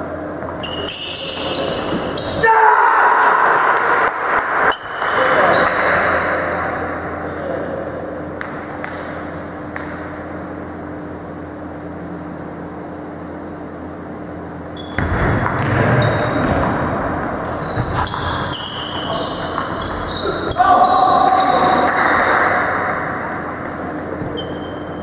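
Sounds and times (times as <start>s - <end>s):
background hum: 0.0s - 25.0s
shoe squeaks: 0.5s - 2.4s, 4.7s - 5.9s, 14.7s - 15.1s, 16.0s - 16.5s, 17.6s - 22.3s, 24.2s - 25.0s.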